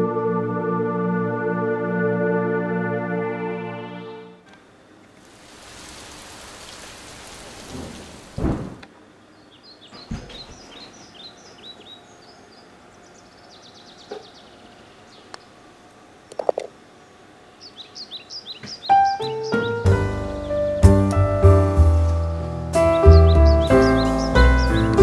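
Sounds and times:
rain falling: 5.1s - 8.8s
thunder rumbling: 5.4s - 8.8s
small birds chirping: 9.1s - 15.7s, 16.3s - 20.9s, 22.8s - 25.0s
bird trill: 9.3s - 15.4s, 17.6s - 20.7s, 22.8s - 25.0s.

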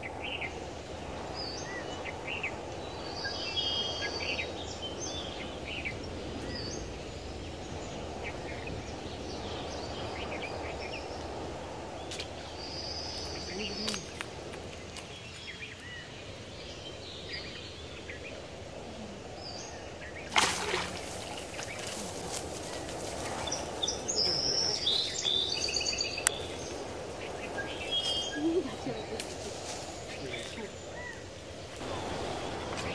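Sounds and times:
outdoor background noise: 0.0s - 32.9s
rushing swish and splash: 20.2s - 25.6s
bird chirps: 20.5s - 31.3s.

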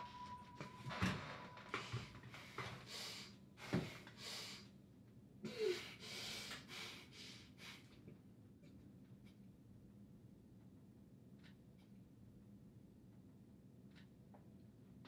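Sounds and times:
man breathing heavily: 1.7s - 4.7s, 5.5s - 8.0s.

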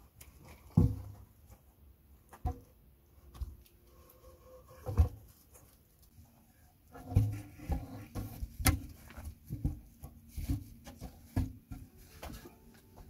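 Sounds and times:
knocks and thumps among logs: 0.4s - 1.6s, 2.3s - 2.8s, 4.8s - 5.4s, 6.9s - 13.0s.

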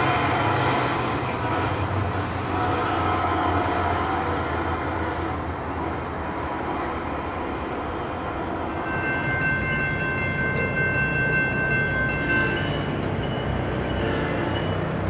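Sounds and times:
train horn: 1.4s - 5.4s.

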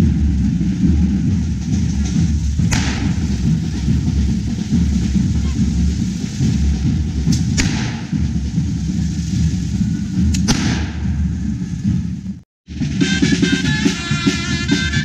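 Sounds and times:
low rumble: 0.0s - 13.0s
fireworks hissing: 0.8s - 12.2s
firework cracks: 2.7s - 3.4s, 7.3s - 8.2s, 10.3s - 11.1s.

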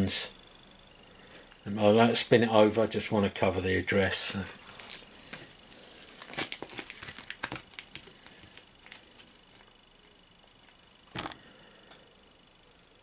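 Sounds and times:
cards rustling and crinkling: 4.4s - 11.4s.

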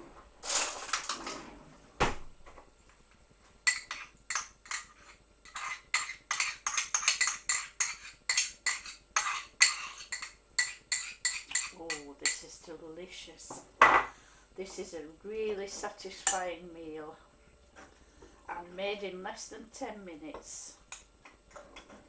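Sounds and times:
teaspoon scraping and clinking on pot: 3.7s - 12.5s.

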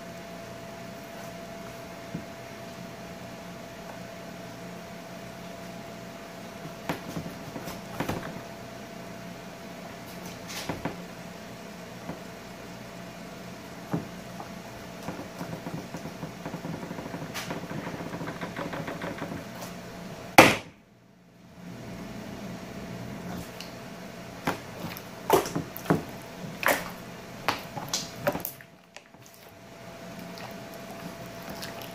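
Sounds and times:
steady low hum: 0.0s - 31.9s
sharp loud slap: 20.4s - 20.8s.

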